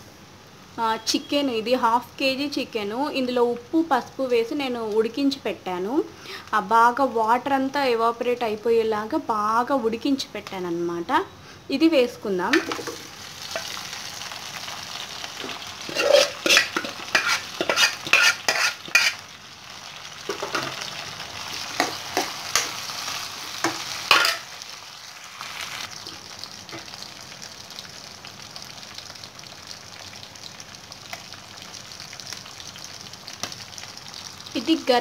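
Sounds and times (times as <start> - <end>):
chicken sizzling in hot oil: 12.5 - 35.0
utensils scraping and knocking pan: 15.4 - 19.2.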